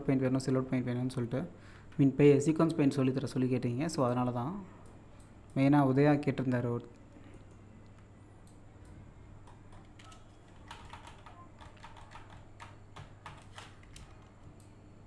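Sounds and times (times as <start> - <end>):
steady low hum: 0.0 - 15.0
keyboard and mouse clicking: 7.8 - 14.8.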